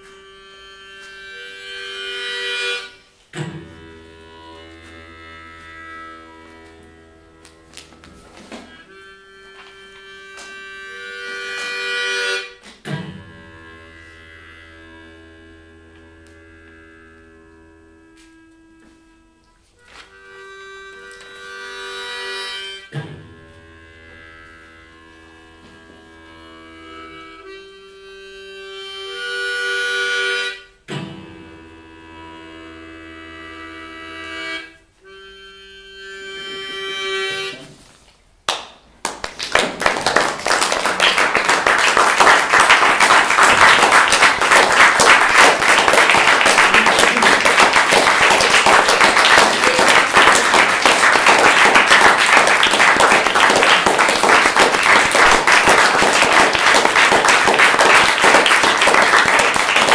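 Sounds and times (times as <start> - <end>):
harmonica playing chords: 0.0 - 38.4, 40.1 - 59.9
audience applauding: 38.5 - 59.9.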